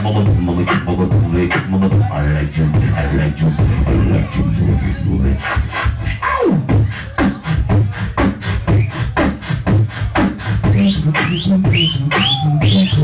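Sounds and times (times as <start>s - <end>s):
beatboxing kick and snare: 0.0s - 4.5s, 5.3s - 13.0s
hummed bass line: 0.0s - 13.0s
vocal glides: 0.0s - 13.0s.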